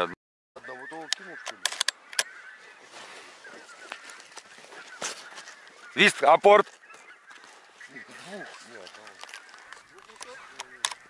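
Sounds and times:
geese honking: 0.0 - 11.0
shotgun handling clicks: 1.1 - 2.3, 8.9 - 11.0.

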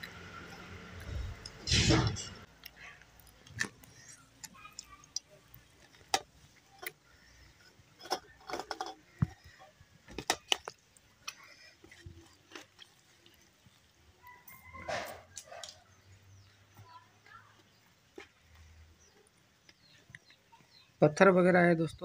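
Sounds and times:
fingers and rice on steel plate: 2.4 - 16.1.

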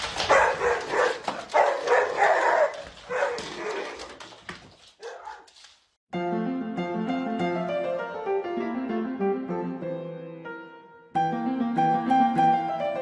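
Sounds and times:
dog barking and yelping: 0.2 - 4.2, 5.0 - 5.5
music: 6.1 - 13.0.

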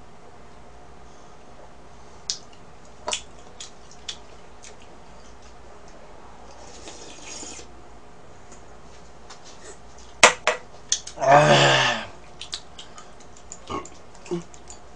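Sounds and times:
soft hiss of drinking from can: 6.5 - 7.7.

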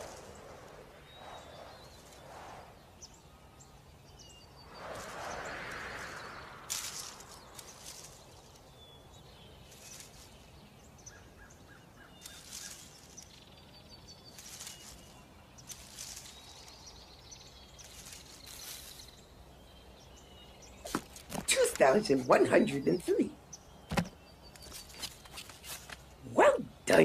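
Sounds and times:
soft rustles: 0.0 - 3.2, 4.6 - 11.0, 12.1 - 19.4, 23.9 - 26.2.

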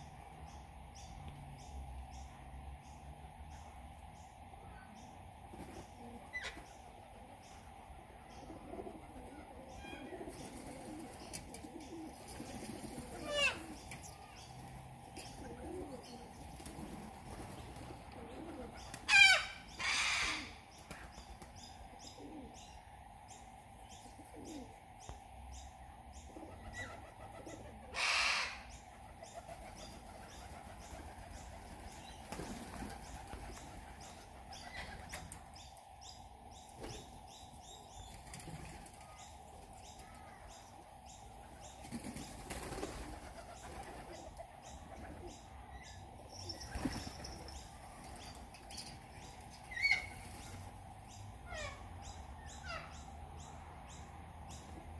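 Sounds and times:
birds screeching: 12.9 - 14.5, 18.3 - 21.2, 26.4 - 38.1, 38.9 - 50.6, 51.4 - 53.1
wings flapping: 29.1 - 35.5, 41.8 - 44.4, 46.6 - 48.5.

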